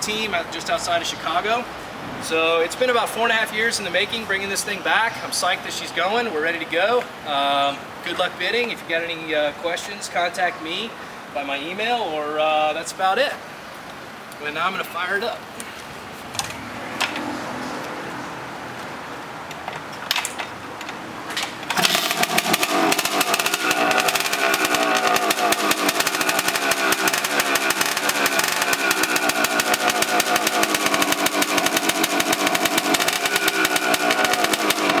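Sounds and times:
two-stroke motorcycle engine popping: 21.6s - 35.0s.

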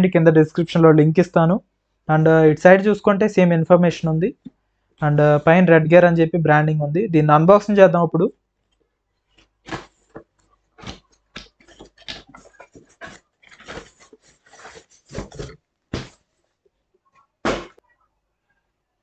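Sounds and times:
packaging rustling and crinkling: 9.2s - 16.6s.

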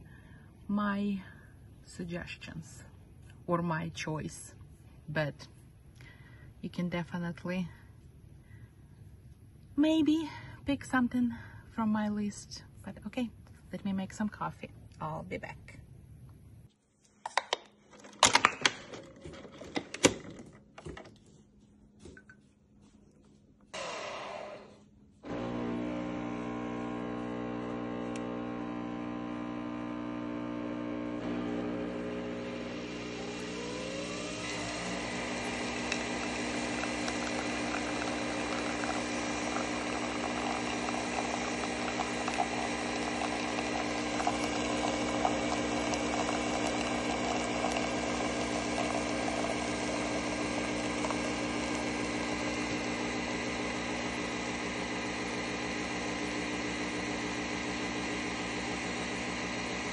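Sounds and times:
coffee machine pump humming: 25.2s - 59.9s
coffee streaming into mug: 31.3s - 59.9s.

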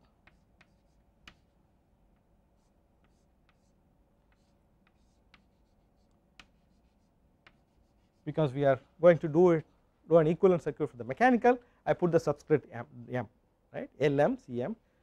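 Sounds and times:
chalk tapping and scratching: 0.0s - 8.3s.

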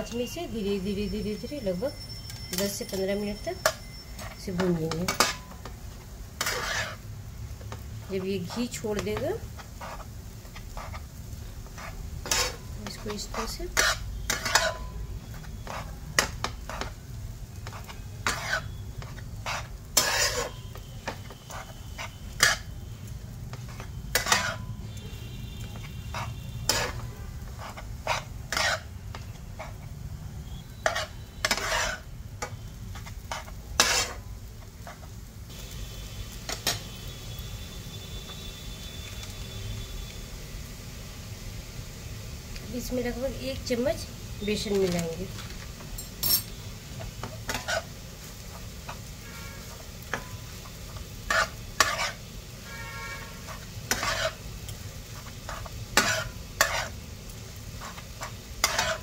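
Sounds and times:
spatula scraping frying pan: 2.8s - 22.9s, 23.5s - 35.2s, 44.8s - 59.0s.

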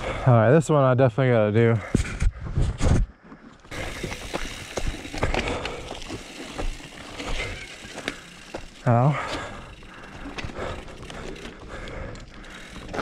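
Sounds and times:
bike tyres crunching over rock: 3.6s - 13.0s
bike knocks and rattles: 3.7s - 11.8s.

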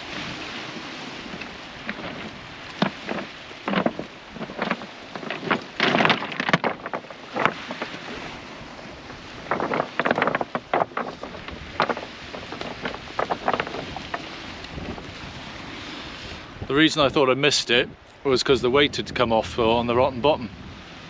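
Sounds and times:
sea washing on pebbles: 0.0s - 17.2s
wind on microphone: 0.0s - 21.0s
pebble clicks and rattles: 1.3s - 8.0s, 9.4s - 14.2s.

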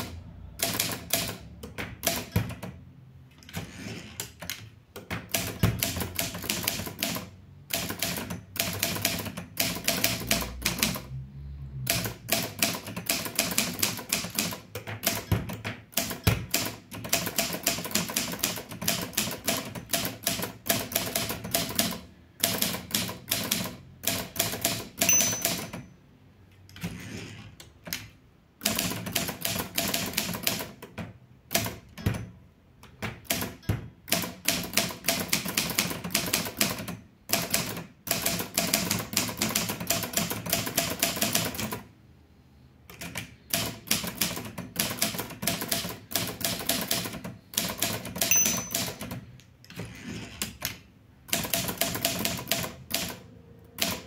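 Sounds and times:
manual typewriter typing: 0.0s - 2.8s, 3.4s - 11.1s, 11.8s - 25.9s, 27.8s - 30.9s, 32.9s - 41.8s, 42.9s - 49.3s, 50.4s - 54.0s
typewriter bell ring: 25.0s - 26.0s, 48.2s - 49.2s.

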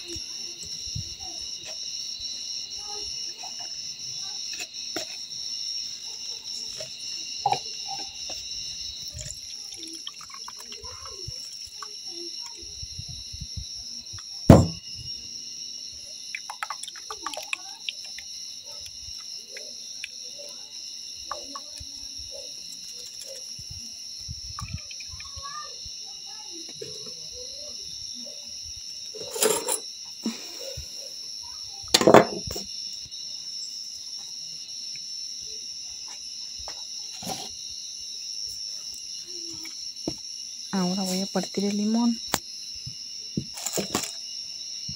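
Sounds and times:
crickets chirping: 0.0s - 44.9s
sharp knock: 14.5s - 14.8s.

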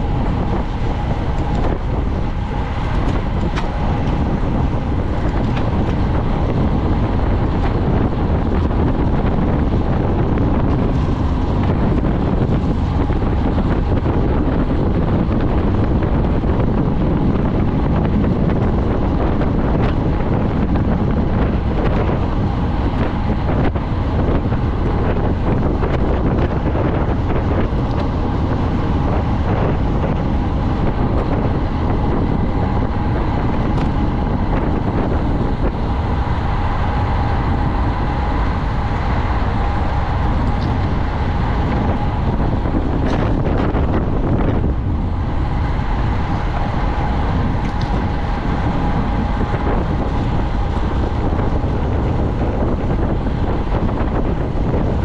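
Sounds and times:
wind noise on microphone: 0.0s - 55.0s.

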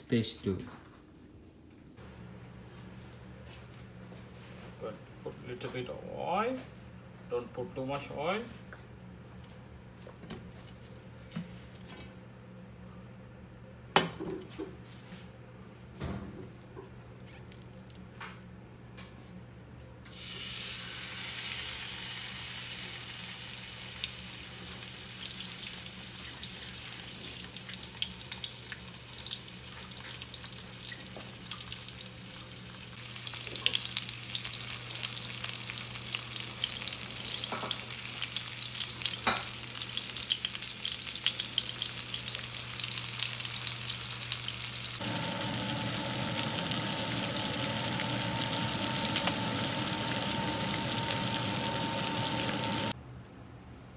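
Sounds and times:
fish sizzling in hot oil: 20.2s - 53.0s
steady hum: 44.9s - 53.0s.

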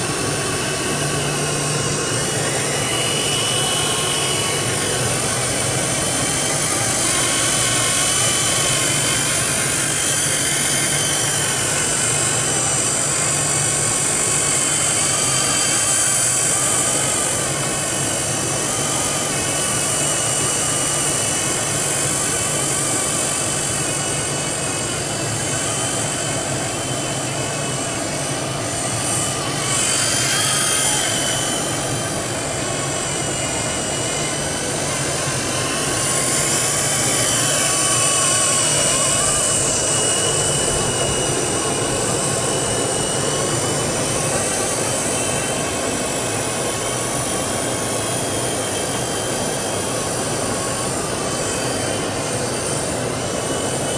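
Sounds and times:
rc helicopter rotor whine: 0.0s - 53.9s.

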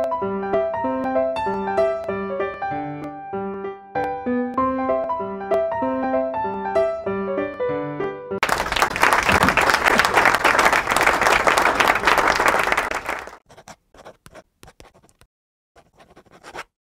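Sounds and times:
audience applauding: 8.4s - 13.4s.

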